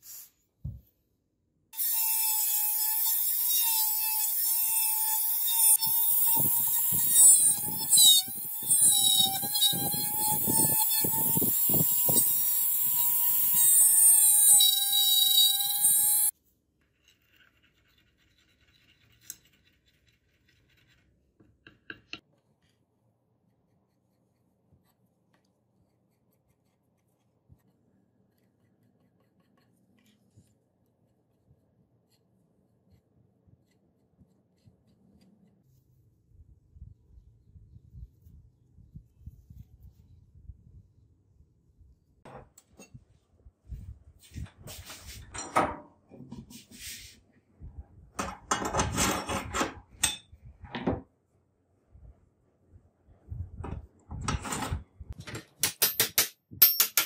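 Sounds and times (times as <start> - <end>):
drill bit rasping through wood: 1.8 - 16.3.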